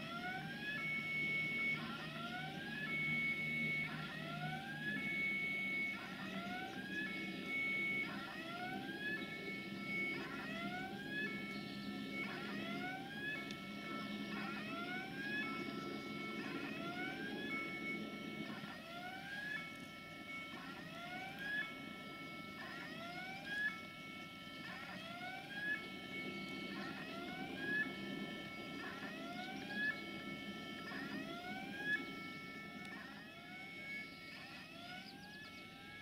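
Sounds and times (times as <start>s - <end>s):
electronic warning siren whooping: 0.0s - 36.0s.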